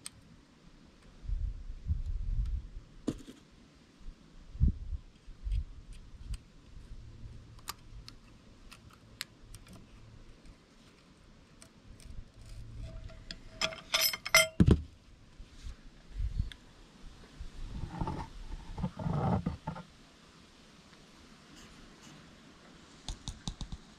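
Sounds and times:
small metallic clicks and clinks: 12.8 - 14.6.

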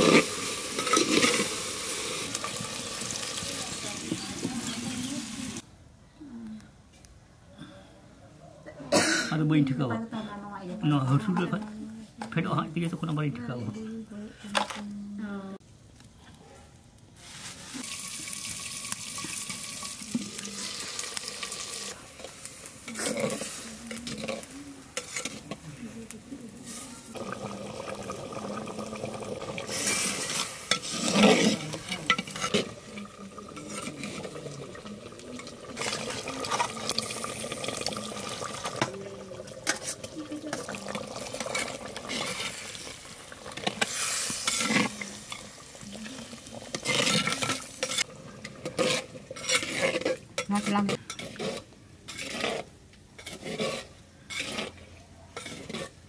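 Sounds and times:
food sizzling in a clay pot: 0.0 - 5.6, 10.7 - 13.5, 16.8 - 56.0
spatula scraping a pot: 22.9 - 25.6, 29.7 - 34.7, 41.3 - 42.8, 43.6 - 45.4, 46.6 - 56.0.

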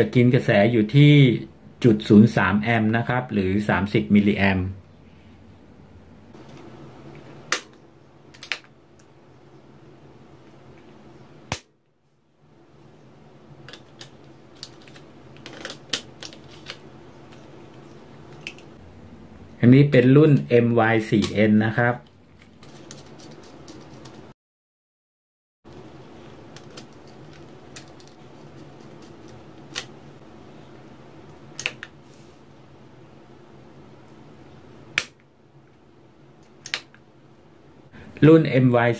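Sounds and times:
steady low hum: 0.0 - 24.3, 25.7 - 38.9
wire terminals clicking and tapping: 26.5 - 30.0.

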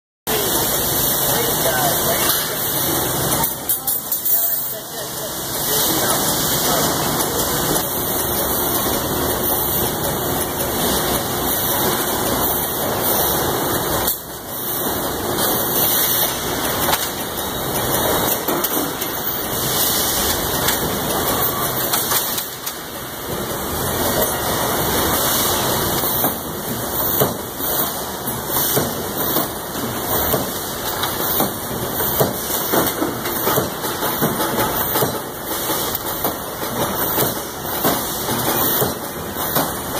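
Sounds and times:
welding machinery hiss and hum: 0.3 - 39.9
machinery knocks and clanks: 16.3 - 19.6, 25.9 - 39.9.

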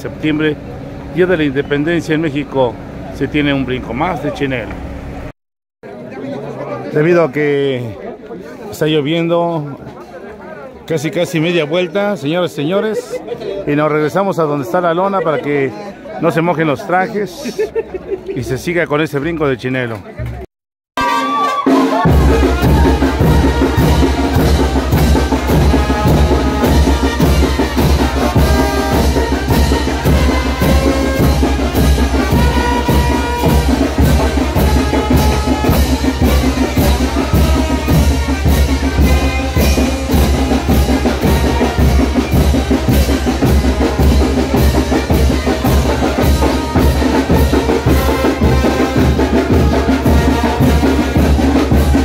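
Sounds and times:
brass band playing dance music: 21.0 - 52.0
steady drum beat: 21.6 - 52.0.

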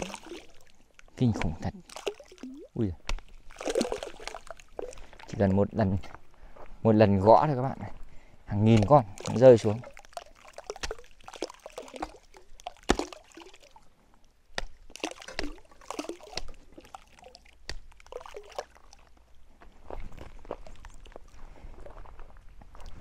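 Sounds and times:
fish splashing at water surface: 0.0 - 5.3, 8.8 - 13.8, 14.5 - 19.2.

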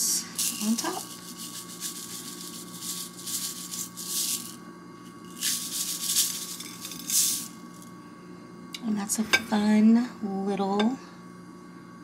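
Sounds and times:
sprinkles rattling in shaker: 0.4 - 4.6, 5.2 - 7.9.

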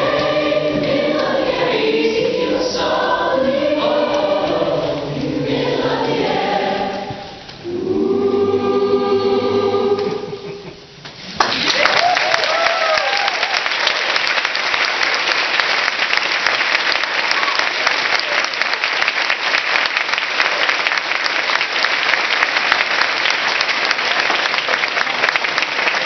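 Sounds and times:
audience applauding: 11.3 - 26.0.

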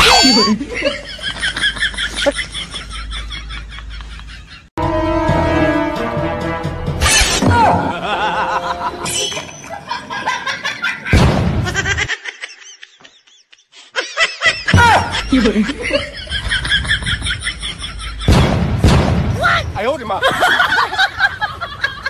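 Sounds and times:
people laughing: 0.0 - 4.7, 7.6 - 18.4, 20.0 - 22.0
loud sudden hit: 11.2 - 11.7, 18.3 - 19.8.

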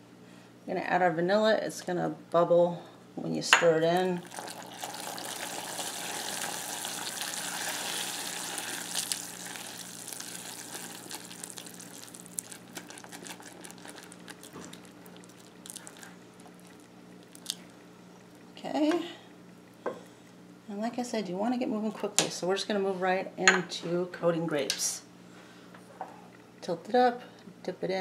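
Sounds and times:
syrup sizzling and bubbling: 4.0 - 19.8.

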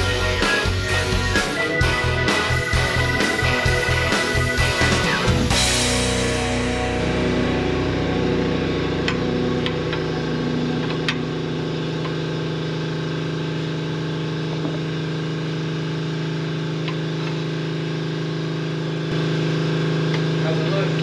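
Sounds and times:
low mechanical hum: 7.7 - 21.0.

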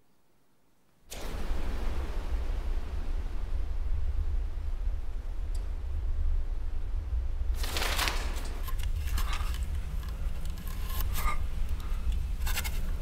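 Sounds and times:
low rumbling drone: 1.2 - 13.0
rustling noise burst: 7.4 - 13.0.

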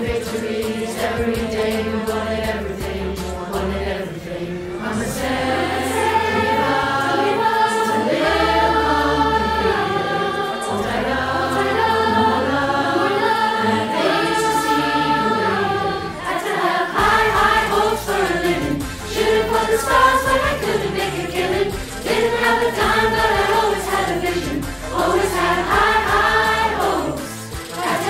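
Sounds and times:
choir singing held notes: 0.0 - 28.0
backing track with bass line: 17.0 - 28.0.

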